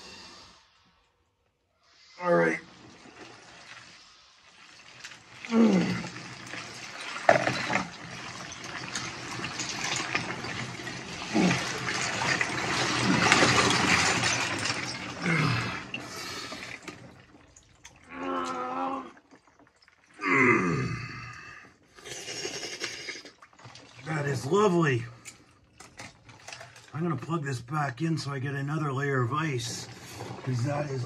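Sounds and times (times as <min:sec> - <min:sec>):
icy water sloshing and pouring: 0:01.8 - 0:31.0.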